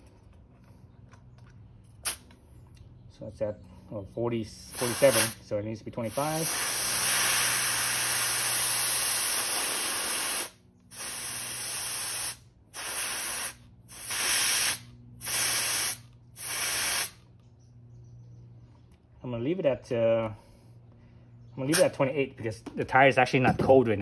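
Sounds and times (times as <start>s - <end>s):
air hissing out of tyre: 4.7s - 5.4s, 6.0s - 17.2s.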